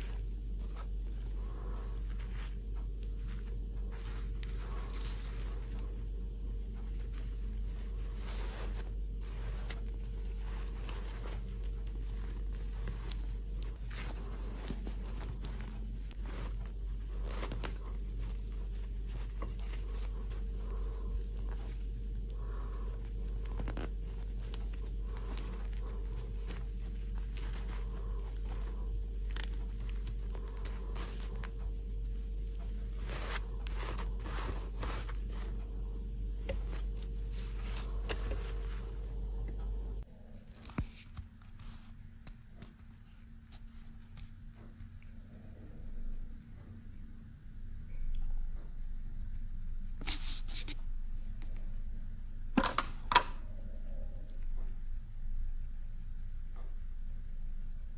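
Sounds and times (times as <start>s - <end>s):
fabric rustling and light scraping: 0.0s - 40.1s
steady low hum: 0.0s - 57.9s.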